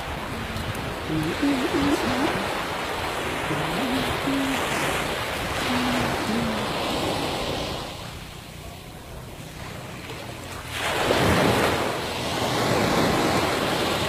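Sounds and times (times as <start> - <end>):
wind buffeting microphone: 0.0 - 8.2
sea waves washing onto beach: 0.0 - 14.0.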